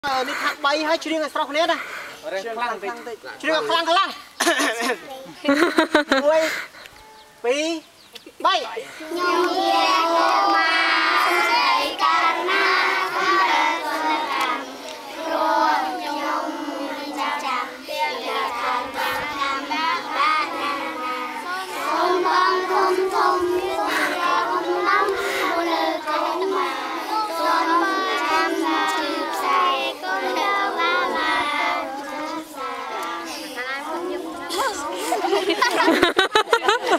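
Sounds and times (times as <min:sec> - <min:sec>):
children singing in chorus: 0:09.0 - 0:36.0.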